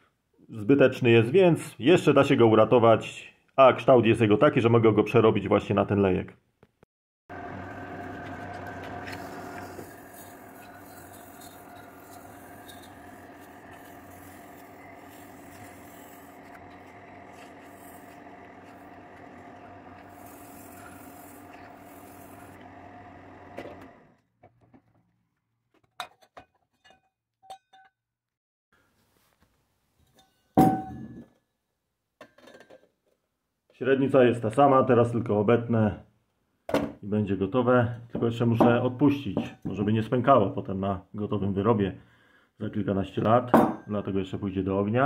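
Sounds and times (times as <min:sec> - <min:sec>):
lathe humming with ringing tone: 0:07.3 - 0:24.1.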